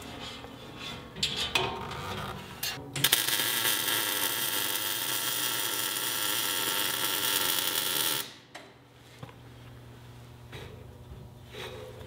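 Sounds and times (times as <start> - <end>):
welder arc crackling and hissing: 3.0 - 8.4.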